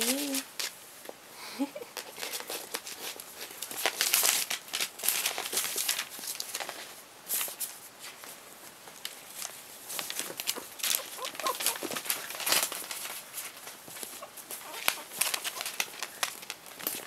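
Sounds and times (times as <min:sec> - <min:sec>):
newspaper crinkling: 0:01.8 - 0:17.0
puppy claws clicking on tiles: 0:10.2 - 0:17.0.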